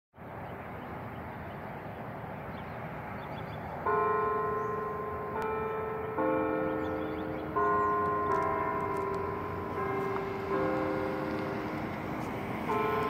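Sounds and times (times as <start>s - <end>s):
church bells ringing: 3.7s - 13.0s.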